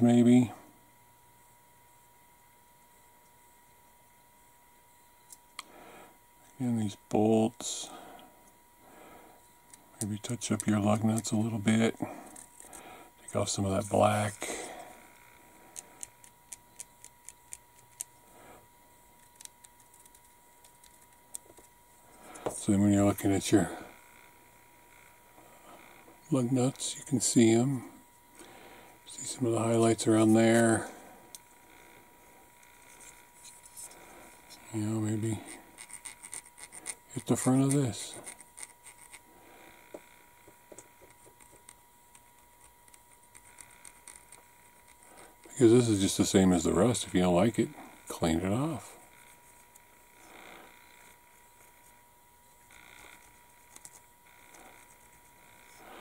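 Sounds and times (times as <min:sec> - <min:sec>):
pencil ticking and scraping on plastic: 0:15.7 - 0:18.2, 0:19.2 - 0:21.7, 0:35.6 - 0:39.2, 0:40.0 - 0:45.5, 0:52.7 - 0:55.8.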